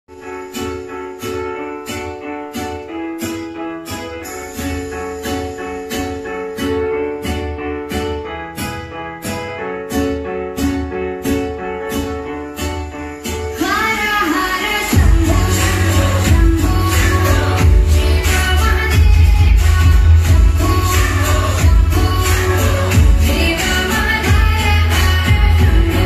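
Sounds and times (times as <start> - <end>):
music with beat and bass: 0.1 - 26.0
person singing: 13.4 - 26.0.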